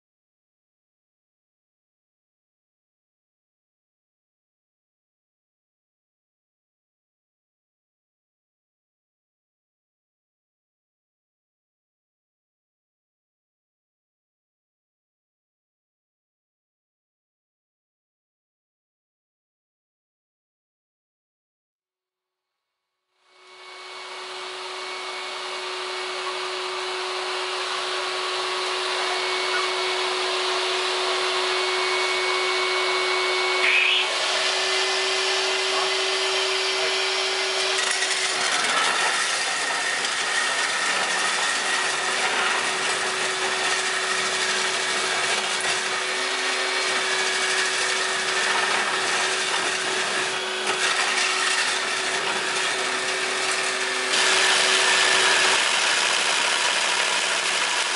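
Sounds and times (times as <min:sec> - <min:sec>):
core drill grinding through wall: 0:23.3 - 0:57.9
vacuum hose suction: 0:23.9 - 0:57.8.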